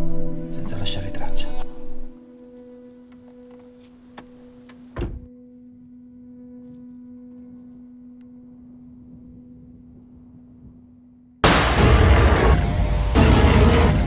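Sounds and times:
deep hit: 11.4s - 14.0s.

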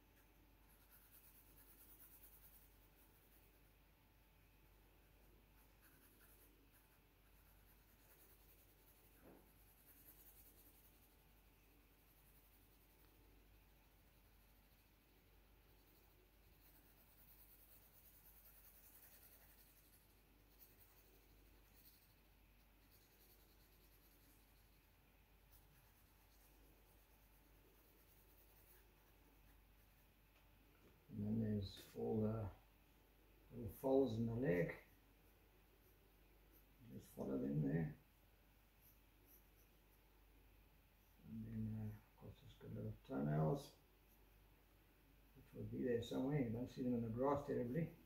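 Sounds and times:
pencil scratching on paper: 0.0s - 3.7s, 5.1s - 30.2s, 38.8s - 40.0s.

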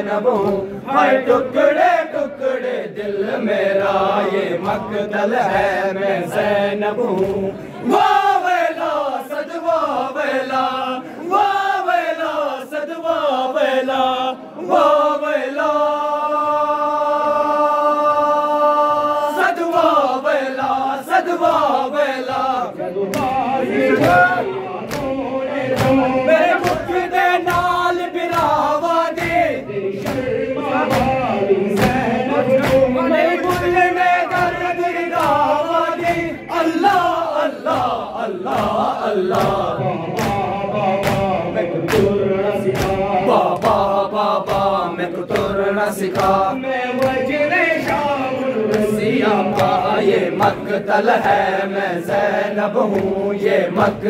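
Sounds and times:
men chanting a lament: 0.0s - 54.0s
hands slapping chests: 7.0s - 7.5s, 22.3s - 36.4s, 37.6s - 51.4s, 52.8s - 53.2s.

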